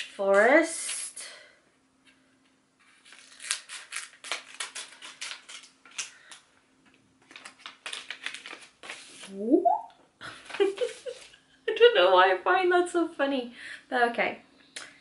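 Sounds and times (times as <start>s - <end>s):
scissors snipping wrapping: 3.2s - 6.2s.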